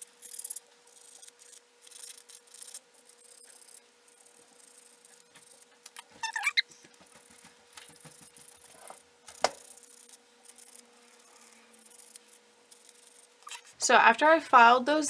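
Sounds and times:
brief wavering squeak: 6.2s - 6.6s.

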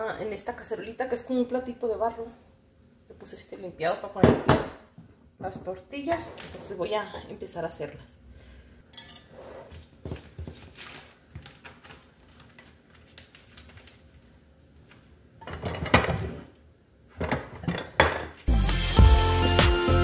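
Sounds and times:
plastic sheet rustling: 10.1s - 15.2s
background music: 18.5s - 20.0s.

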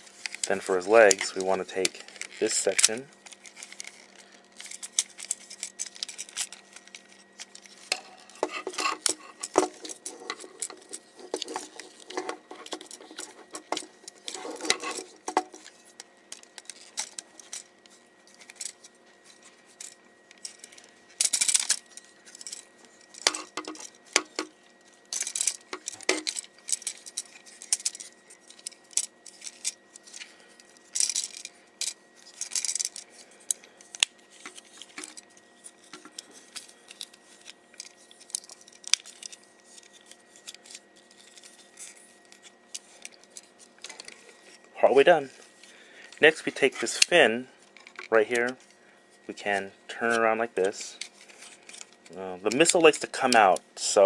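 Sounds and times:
plastic toy parts clicking: 19.8s - 24.5s, 25.1s - 30.3s, 30.9s - 35.2s.

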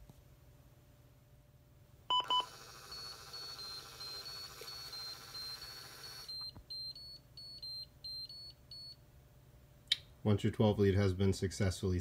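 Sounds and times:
printer whirring: 2.2s - 6.4s.

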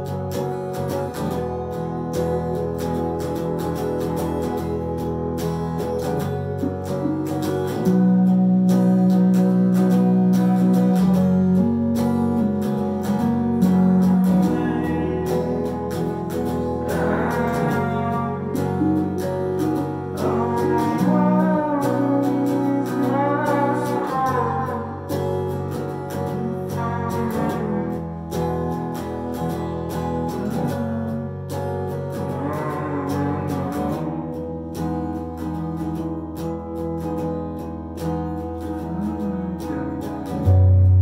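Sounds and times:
band playing ambient music: 0.0s - 41.0s
electric guitars with effects: 0.0s - 41.0s
wavering melody line: 6.5s - 11.9s, 38.8s - 41.0s.

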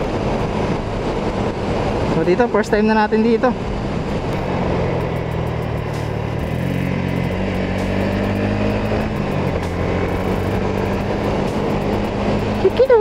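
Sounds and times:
wind rush over microphone: 0.0s - 13.0s
motorcycle engine running: 3.6s - 13.0s.

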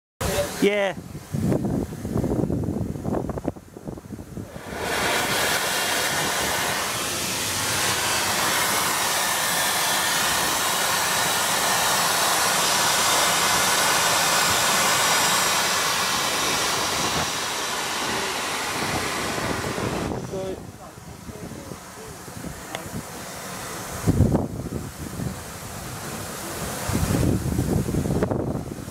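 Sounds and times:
steam hissing from locomotive: 0.2s - 28.9s.

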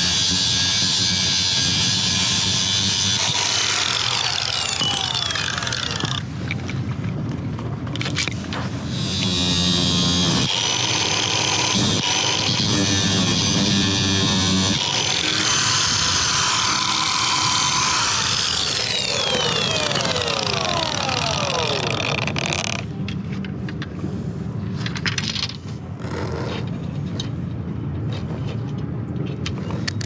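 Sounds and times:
angle grinder cutting: 0.0s - 6.3s, 8.8s - 22.8s.

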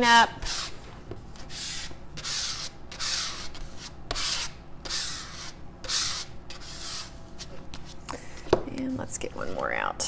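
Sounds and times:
card scraping across paper: 0.4s - 8.0s.

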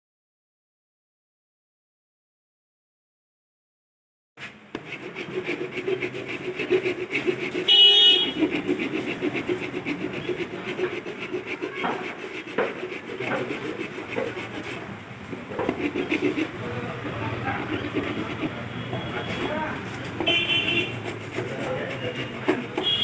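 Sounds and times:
hand file rasping on plastic: 4.8s - 23.0s
vehicle horn honking: 7.6s - 8.4s, 20.2s - 21.0s, 22.8s - 23.0s.

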